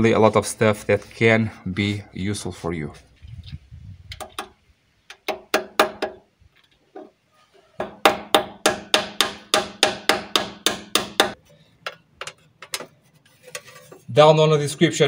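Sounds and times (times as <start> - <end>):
hammer tapping on metal: 5.1 - 6.2, 7.8 - 12.8.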